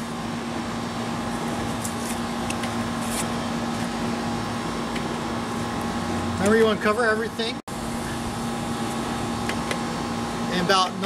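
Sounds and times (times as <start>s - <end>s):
steady mechanical hum: 0.0s - 11.0s.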